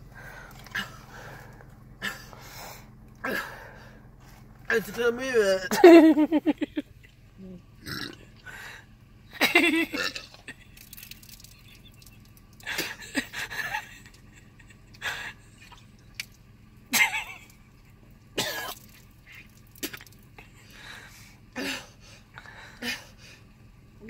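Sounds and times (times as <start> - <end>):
woman coughing and retching: 9.7 - 10.5, 18.4 - 18.9.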